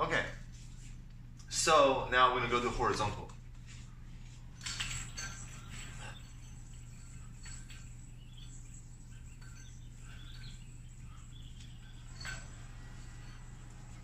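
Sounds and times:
steady low hum: 0.0 - 14.0
yo-yo ticks and swishes: 3.0 - 14.0.

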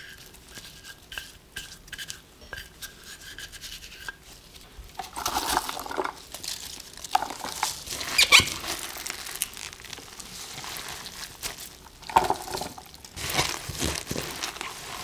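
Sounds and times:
wet leaves squelching in a bowl: 5.0 - 15.0.

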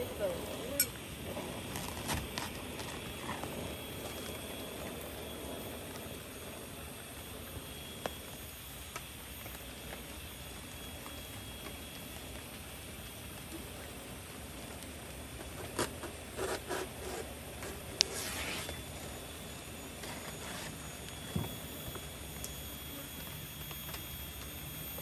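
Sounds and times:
outdoor background hiss: 0.0 - 25.0
large leaf rustling: 8.6 - 22.4.

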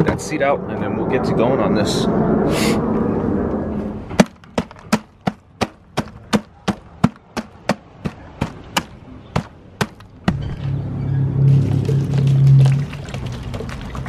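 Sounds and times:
sledgehammer pounding dry ice: 4.2 - 10.0.

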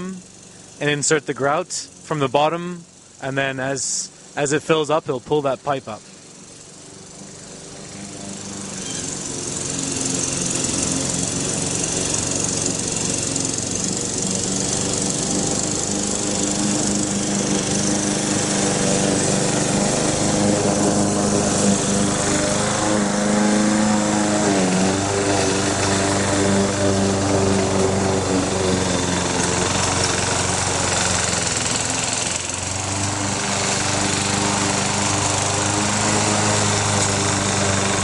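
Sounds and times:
drilling rig engine running: 8.2 - 38.0.

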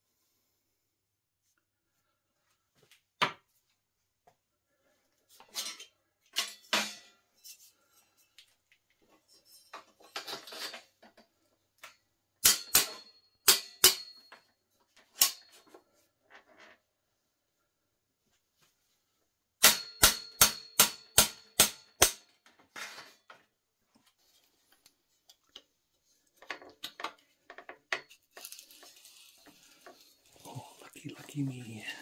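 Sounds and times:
small metal parts clinking: 28.0 - 30.4.

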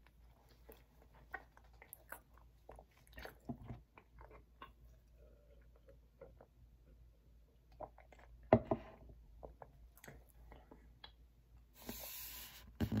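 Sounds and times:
person gulping milk: 0.5 - 7.0, 7.6 - 11.2.

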